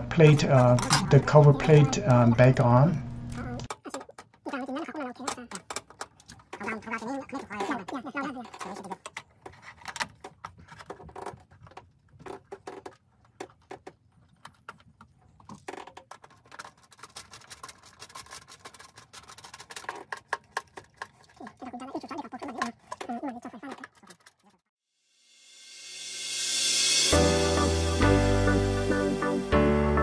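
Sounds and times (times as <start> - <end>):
metal clicks taps and scrapes: 5.3 - 21.4.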